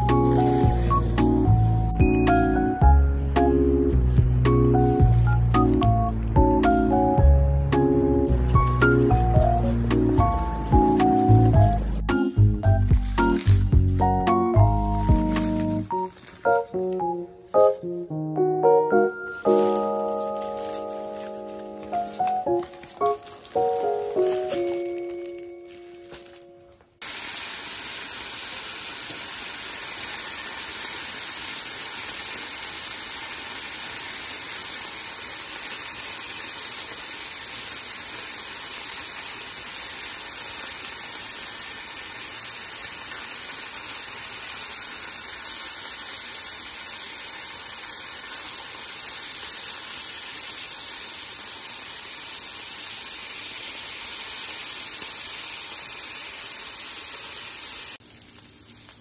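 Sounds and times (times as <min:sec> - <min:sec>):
bacon sizzling in a frying pan: 0:00.0 - 0:01.7, 0:12.2 - 0:16.1, 0:19.3 - 0:22.3, 0:23.0 - 0:25.4, 0:27.0 - 0:59.0.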